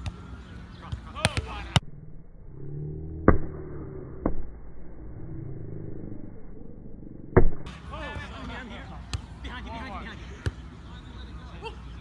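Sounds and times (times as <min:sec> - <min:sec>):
low steady rumble: 0:01.8 - 0:07.7.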